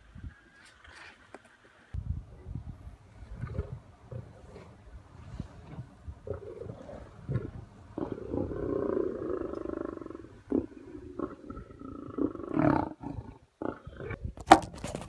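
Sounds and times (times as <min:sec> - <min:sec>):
lions growling: 0:03.1 - 0:14.2.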